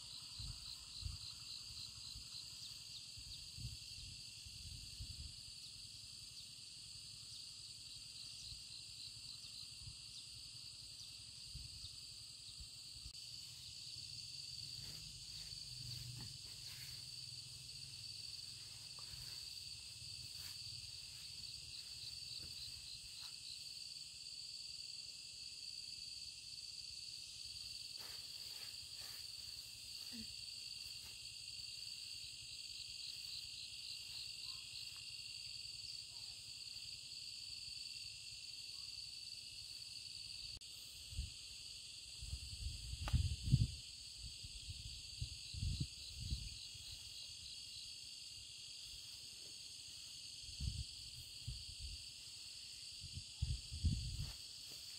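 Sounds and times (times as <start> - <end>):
field insects chirring: 0.0 - 54.9
rapidly pulsed insect chirp: 0.0 - 54.9.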